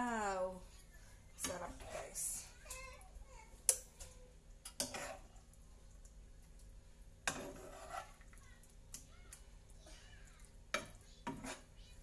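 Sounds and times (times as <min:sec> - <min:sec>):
spoon scraping and knocking on pan: 0:01.4 - 0:02.4, 0:03.7 - 0:05.4, 0:07.2 - 0:08.4, 0:10.7 - 0:11.8.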